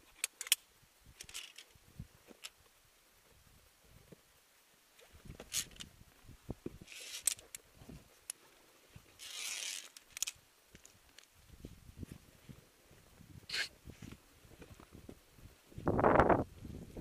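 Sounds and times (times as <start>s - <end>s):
carabiner clicks on steel cable: 0.1s - 1.7s, 6.9s - 7.6s, 9.2s - 11.3s
gear scraping against rock: 6.8s - 7.5s, 9.2s - 10.4s.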